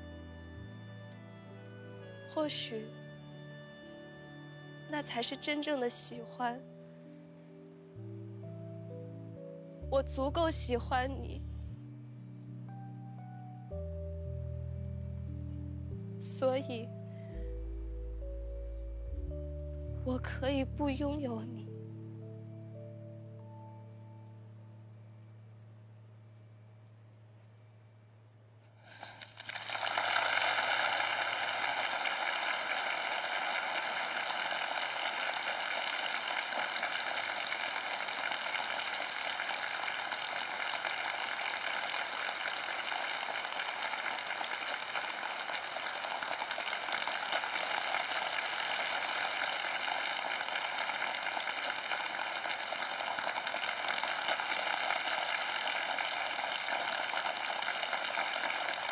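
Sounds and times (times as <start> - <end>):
audience applauding: 28.8 - 58.9.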